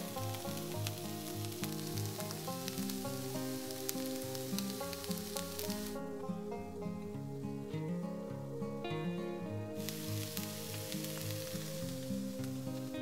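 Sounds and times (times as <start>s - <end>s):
vegetables sizzling in oil: 0.0s - 6.0s, 9.8s - 13.0s
soft background music: 0.0s - 13.0s.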